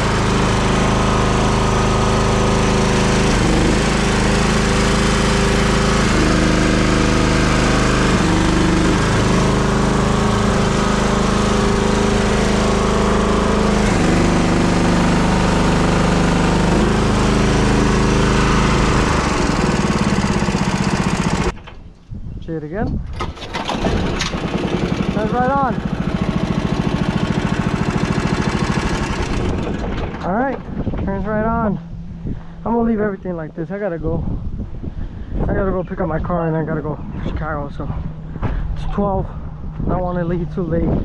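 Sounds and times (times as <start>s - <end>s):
small buggy engine running: 0.0s - 21.6s, 23.2s - 31.0s.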